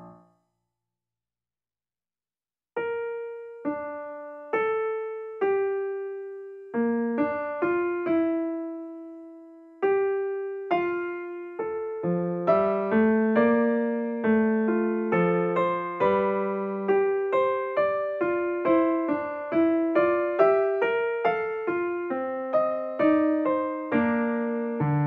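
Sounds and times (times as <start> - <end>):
slow solo piano notes: 2.8 - 25.0.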